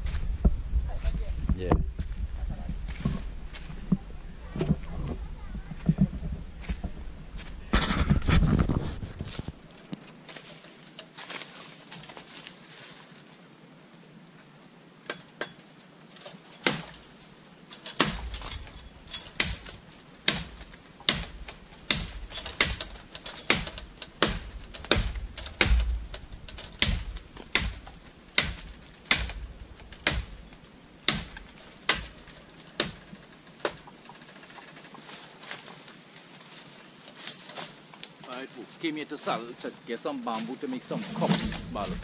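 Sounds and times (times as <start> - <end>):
bamboo being chopped: 16.6 - 17.0, 17.8 - 33.9.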